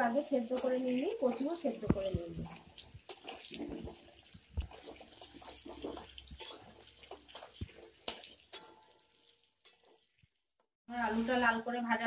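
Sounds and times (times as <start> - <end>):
potatoes sizzling in oil: 0.0 - 12.0
spatula scraping a pan: 1.2 - 10.2.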